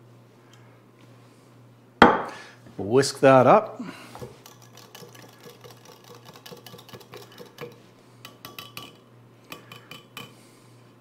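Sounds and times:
whisk clicking against glass: 4.4 - 10.3.

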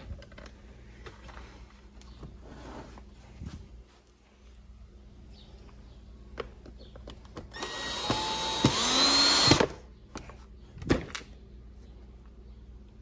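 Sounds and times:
cordless drill driving a screw: 7.5 - 9.8.

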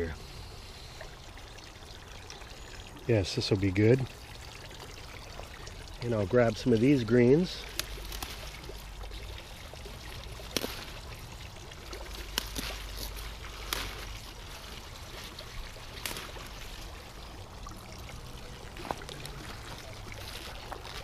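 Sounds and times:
leaf rustling: 6.0 - 21.0
leaves snapping off stalk: 7.6 - 8.5, 10.4 - 11.0, 12.1 - 14.7, 15.4 - 16.6.

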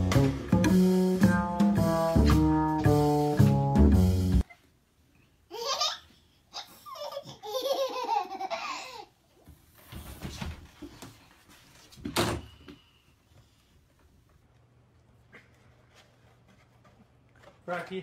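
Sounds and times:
baby giggling: 5.5 - 9.1.

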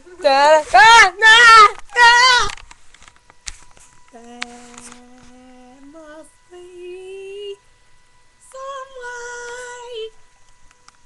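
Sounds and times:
woman singing held notes: 4.1 - 7.6, 8.4 - 10.2.

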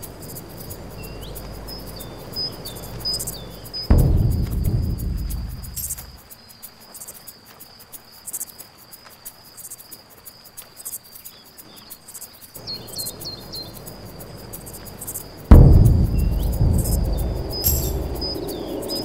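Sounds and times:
crickets trilling and chirping: 0.0 - 19.0
low rumble: 0.4 - 6.2, 12.6 - 19.0.

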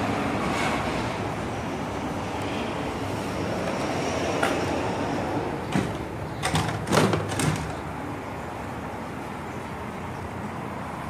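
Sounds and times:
plastic knocks and clatters: 5.7 - 7.8.

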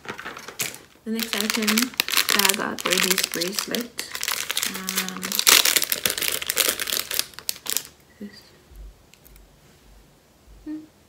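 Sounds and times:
plastic packaging crinkling: 0.0 - 8.0.

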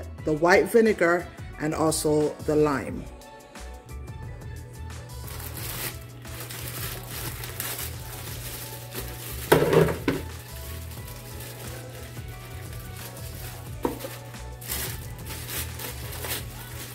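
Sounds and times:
background music: 0.0 - 16.9
plastic bag crinkling: 5.2 - 16.9
meat tipping into plastic bowl: 9.4 - 10.4.

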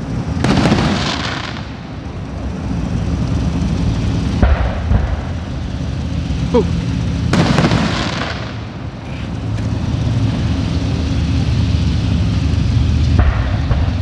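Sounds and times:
firework bangs: 0.2 - 2.2, 4.2 - 5.6, 7.2 - 9.4, 13.1 - 14.0.

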